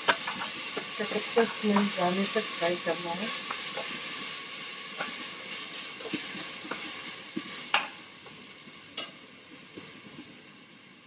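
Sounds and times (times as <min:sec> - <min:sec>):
onions sizzling in hot oil: 0:00.0 - 0:11.0
wooden spatula scraping a pot: 0:05.0 - 0:07.8.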